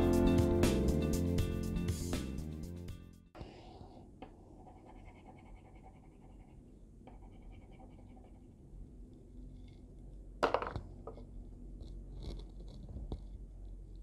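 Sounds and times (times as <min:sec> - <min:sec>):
crayon scratching on paper: 0:03.4 - 0:08.6.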